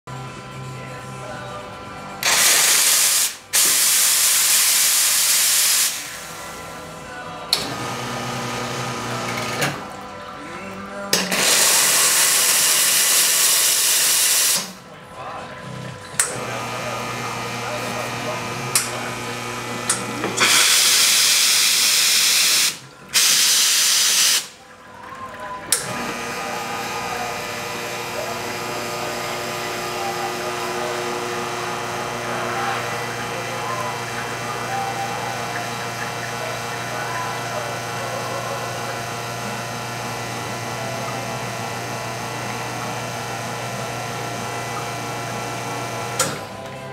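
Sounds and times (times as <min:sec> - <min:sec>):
espresso machine pump humming: 0:00.1 - 0:14.8, 0:15.4 - 0:46.9
steam wand hissing: 0:02.2 - 0:06.5, 0:20.3 - 0:24.6.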